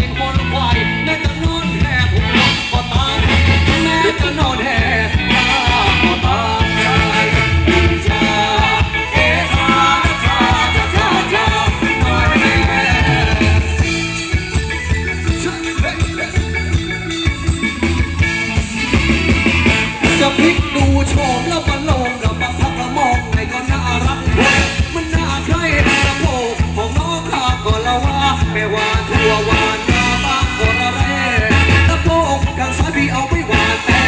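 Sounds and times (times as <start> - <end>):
person singing: 0.0 - 14.0, 19.9 - 34.0
live band dance music: 0.0 - 34.0.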